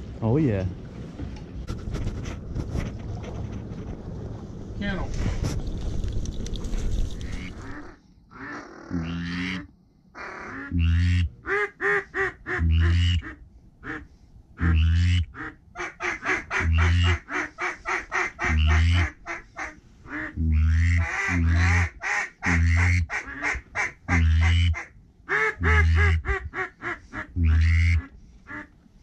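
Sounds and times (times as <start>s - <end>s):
duck chattering calls: 7.2s - 14.0s, 14.6s - 28.7s
duck quacking: 7.2s - 28.7s.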